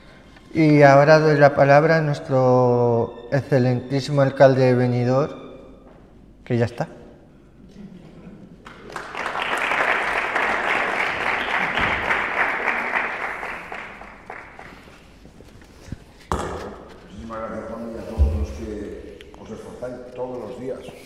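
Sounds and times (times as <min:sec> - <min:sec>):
audience applauding: 0:08.6 - 0:15.2.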